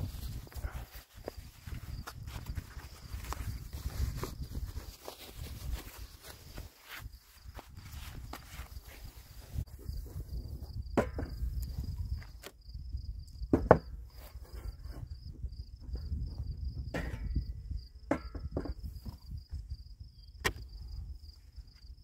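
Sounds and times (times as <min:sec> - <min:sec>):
knocks and clacks of beekeeping gear: 0:13.5 - 0:15.1, 0:15.8 - 0:19.3
cricket trilling: 0:18.8 - 0:22.0.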